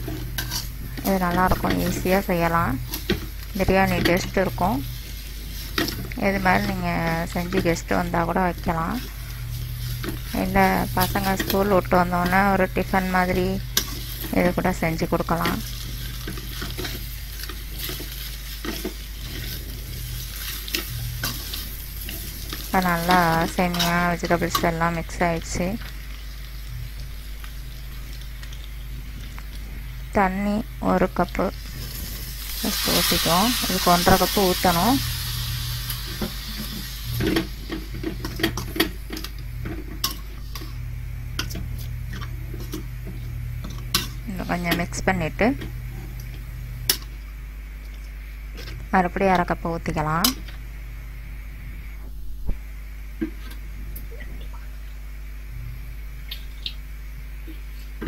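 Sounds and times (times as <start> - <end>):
low steady hum: 0.0 - 58.0.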